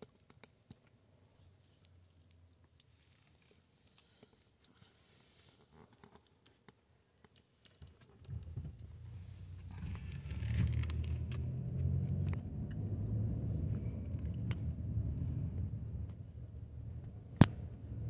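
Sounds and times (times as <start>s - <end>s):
engine and road rumble: 8.2s - 18.0s.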